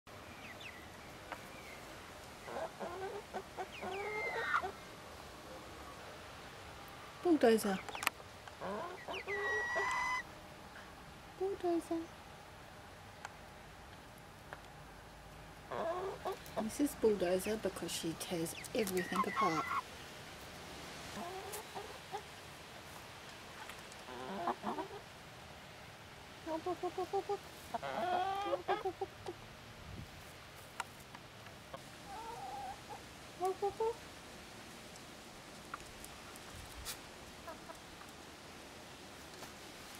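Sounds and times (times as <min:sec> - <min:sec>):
hens clucking: 0:02.4 - 0:04.8, 0:07.7 - 0:10.3, 0:15.6 - 0:19.9, 0:21.0 - 0:22.3, 0:23.6 - 0:25.1, 0:26.4 - 0:29.4, 0:31.7 - 0:34.0, 0:37.4 - 0:37.8.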